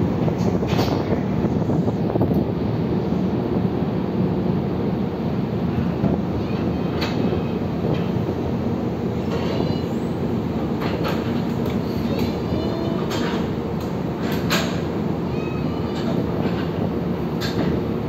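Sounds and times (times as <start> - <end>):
ferry engines rumbling: 0.0 - 18.0.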